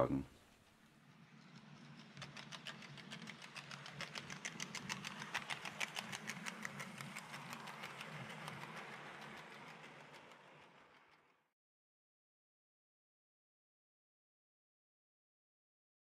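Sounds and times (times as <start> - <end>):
wheels clicking over rail joints: 0.4 - 11.3
model train motor hum: 0.5 - 11.3.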